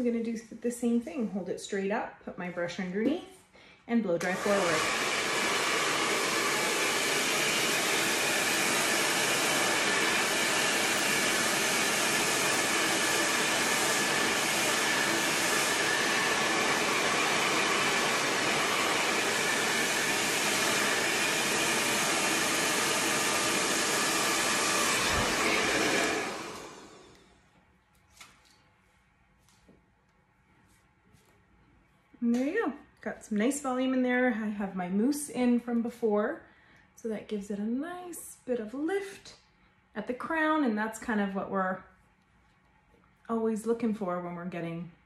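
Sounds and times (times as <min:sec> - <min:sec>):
hair dryer blowing: 0:04.2 - 0:27.4.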